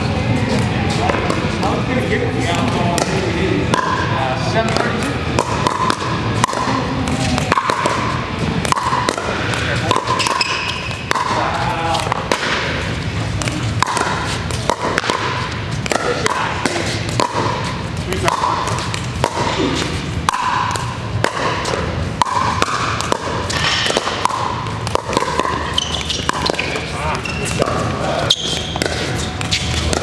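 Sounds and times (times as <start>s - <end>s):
ball bouncing on court: 0.5s - 1.8s, 2.4s - 30.0s
paddles striking plastic ball: 4.6s - 26.9s.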